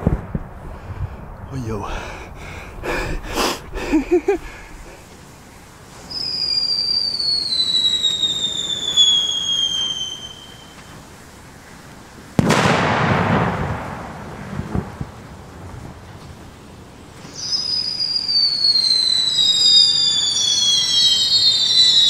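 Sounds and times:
firework bang with rumbling echo: 0:00.0 - 0:05.0, 0:12.4 - 0:16.2
firework whistle falling in pitch: 0:06.0 - 0:11.0, 0:17.2 - 0:22.0.

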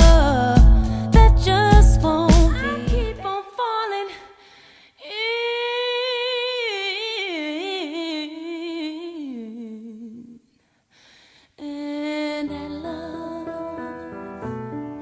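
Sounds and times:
piano: 0:00.0 - 0:03.3, 0:12.3 - 0:15.0
woman singing solo: 0:00.0 - 0:04.4, 0:11.6 - 0:14.7.

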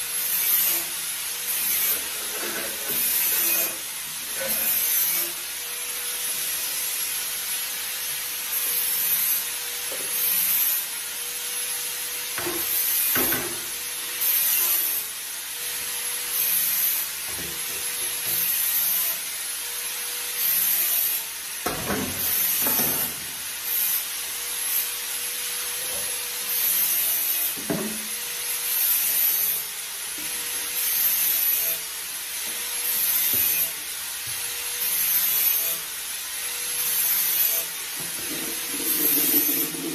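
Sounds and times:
dishes scrubbed by hand: 0:37.9 - 0:39.9.

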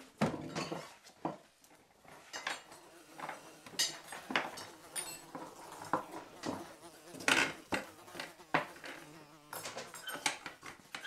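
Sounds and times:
dishes and cutlery clinking: 0:00.2 - 0:01.5.

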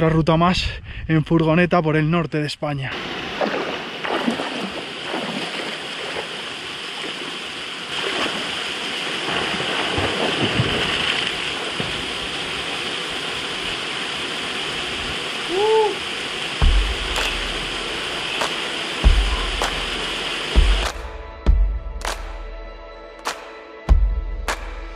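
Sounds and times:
person swimming splashing: 0:03.0 - 0:13.4
small waterfall pouring: 0:03.4 - 0:18.5.

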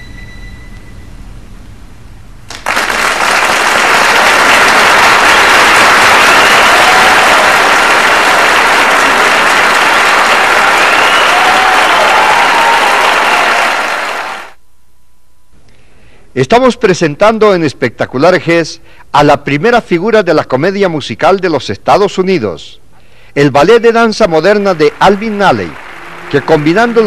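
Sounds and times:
audience applause: 0:02.5 - 0:14.6, 0:24.2 - 0:27.0.

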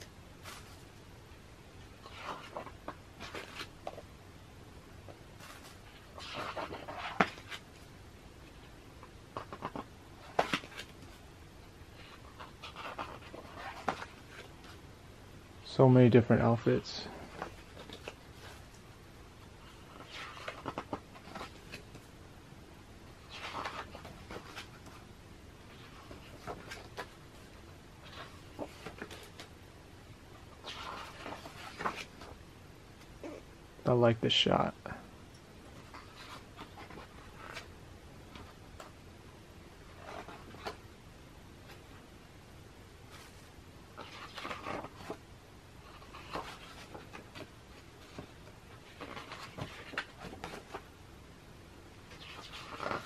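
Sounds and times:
paper pages rustling: 0:00.4 - 0:01.0, 0:01.8 - 0:04.1, 0:05.0 - 0:11.2, 0:11.9 - 0:14.8, 0:17.2 - 0:18.8, 0:19.4 - 0:22.1, 0:23.2 - 0:29.6, 0:30.3 - 0:32.4, 0:35.7 - 0:39.0, 0:39.8 - 0:40.9, 0:43.1 - 0:51.0, 0:52.1 - 0:53.0.

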